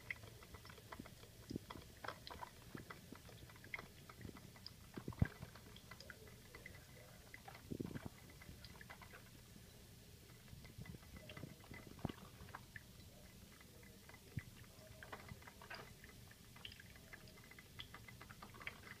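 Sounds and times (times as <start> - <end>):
coffee maker crackling and dripping: 0.0 - 19.0.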